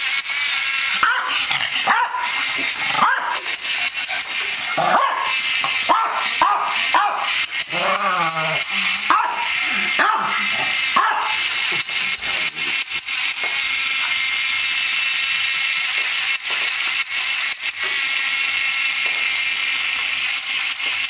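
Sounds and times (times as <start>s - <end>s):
dog barking: 1.0s - 2.3s, 3.0s - 3.5s, 4.8s - 5.3s, 5.9s - 7.3s, 9.1s - 10.4s, 11.0s - 11.4s.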